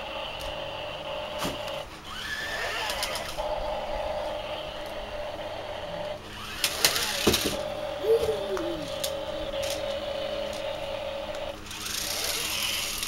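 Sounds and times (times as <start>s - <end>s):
toy car electric motors whining: 0.0s - 13.0s.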